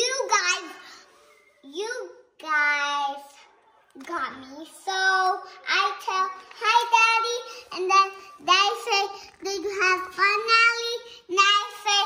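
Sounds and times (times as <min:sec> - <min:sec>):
child singing in a high voice: 0:04.8 - 0:12.0.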